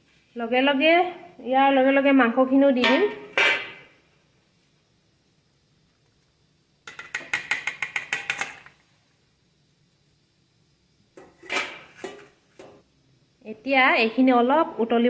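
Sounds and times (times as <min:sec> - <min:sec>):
strainer knocking on steel pot: 0:06.9 - 0:08.6.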